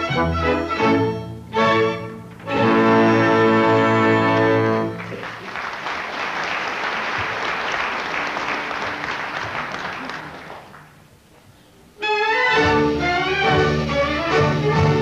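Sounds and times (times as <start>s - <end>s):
orchestral chord: 0.0s - 5.0s
audience applause: 4.7s - 11.3s.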